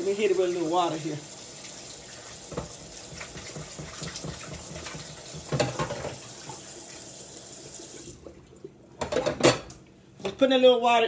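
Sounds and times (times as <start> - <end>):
tap water running into container: 0.0 - 8.7.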